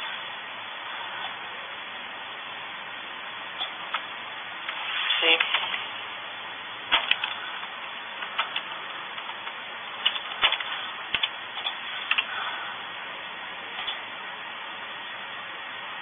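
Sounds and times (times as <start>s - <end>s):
steady hiss: 0.0s - 16.0s
keyboard keys clicking: 10.0s - 12.3s.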